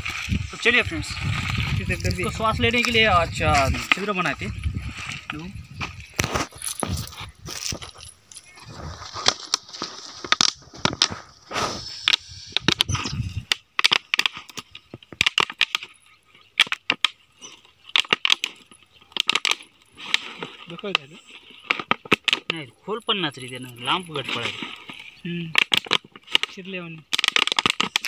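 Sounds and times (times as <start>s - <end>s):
plastic bottle clicks and crackles: 13.5s - 15.9s, 17.9s - 20.2s, 21.6s - 22.6s, 25.4s - 28.0s.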